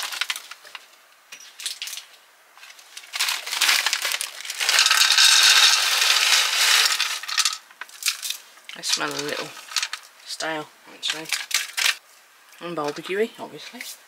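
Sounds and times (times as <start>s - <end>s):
plastic pouch crinkling: 0.0s - 1.0s, 1.6s - 10.1s
nuggets pattering onto metal tray: 1.5s - 10.1s.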